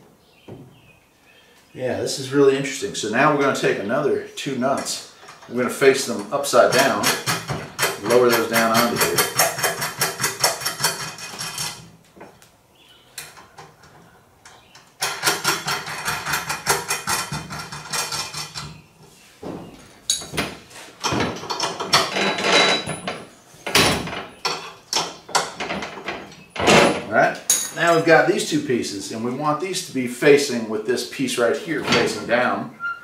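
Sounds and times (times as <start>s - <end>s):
metallic clinks and knocks: 20.1s - 28.1s.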